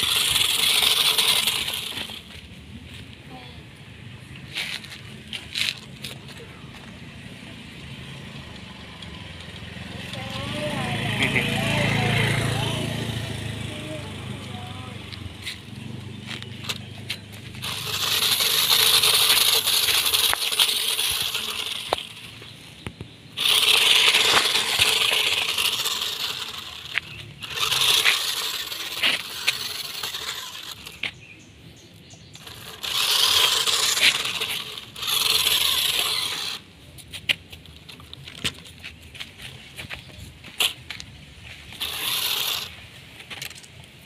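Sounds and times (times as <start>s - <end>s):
toy car electric motor whirring: 0.0s - 2.6s, 8.4s - 31.2s, 32.2s - 39.4s, 41.6s - 43.8s
tyres crunching pebbles: 14.7s - 31.3s.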